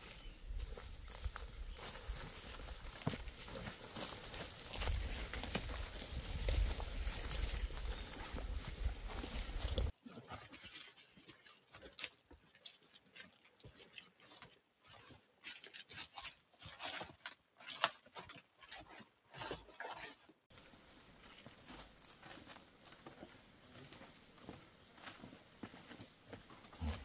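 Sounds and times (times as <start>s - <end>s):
backpack brushing through undergrowth: 0.0s - 9.9s
footsteps crunching on dry leaves: 0.0s - 9.9s, 20.5s - 27.0s
forest background: 0.0s - 27.0s.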